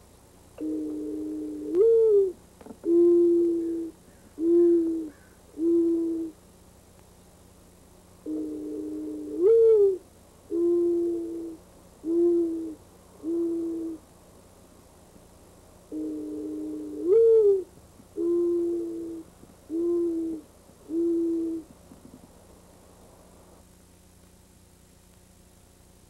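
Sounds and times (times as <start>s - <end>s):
dove cooing: 0.6s - 6.4s, 8.2s - 14.0s, 15.9s - 22.2s.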